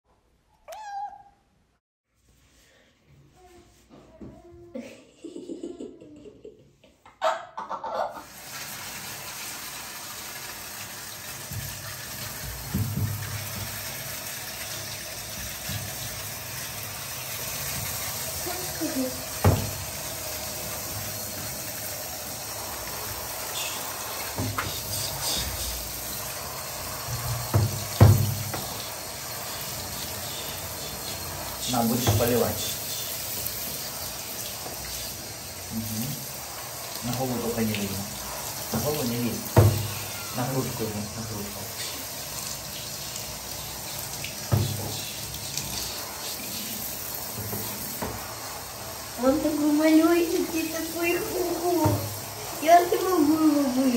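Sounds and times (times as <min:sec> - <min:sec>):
shower water spraying: 0:08.1 - 0:53.9
thump: 0:12.6 - 0:13.2, 0:27.5 - 0:28.7.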